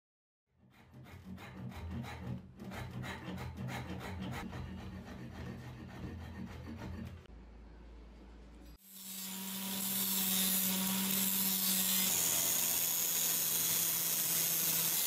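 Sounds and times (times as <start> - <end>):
wood rasp scraping wood: 0.6 - 7.3.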